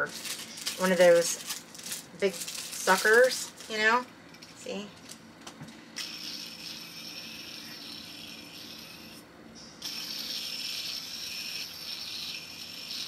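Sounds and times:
fidget spinner whirring: 6.0 - 9.2, 9.8 - 13.0.

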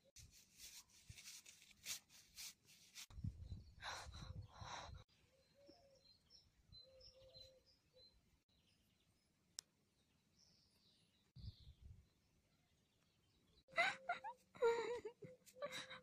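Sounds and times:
faint bird chirps: 3.1 - 9.3.

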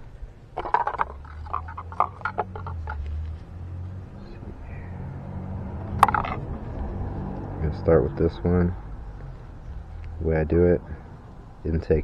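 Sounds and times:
low steady hum: 0.0 - 12.0
clicks and rustles of handling box: 0.6 - 3.4.

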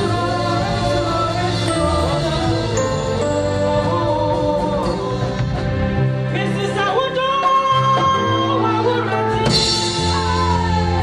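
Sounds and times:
woman singing gospel: 0.0 - 5.7, 6.8 - 11.0
instrumental chords and bass: 0.0 - 11.0.

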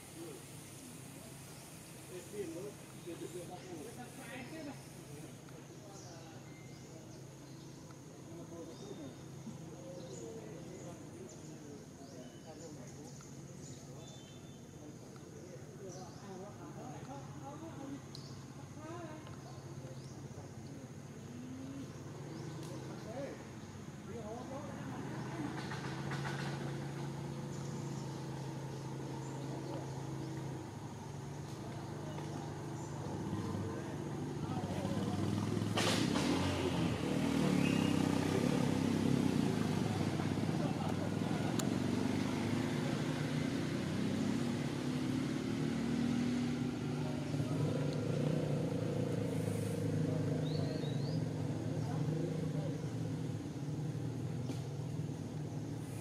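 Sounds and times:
vehicle engine running: 21.7 - 56.0.

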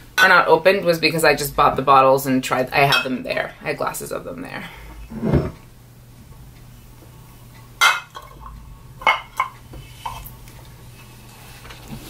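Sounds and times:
glass bottles clinking: 7.8 - 8.4.

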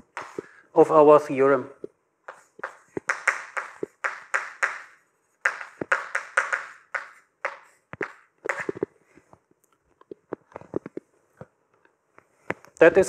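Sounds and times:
footsteps on floor: 2.3 - 4.0, 5.5 - 9.3
chalk writing on blackboard: 2.3 - 8.8.

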